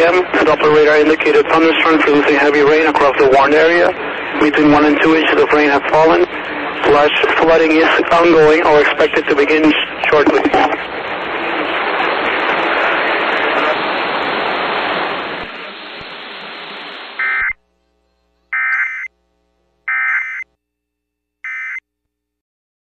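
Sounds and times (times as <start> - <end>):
radio hiss and static: 0.0 - 20.4
warbling data bursts: 17.2 - 17.6, 18.5 - 19.1, 19.9 - 20.4.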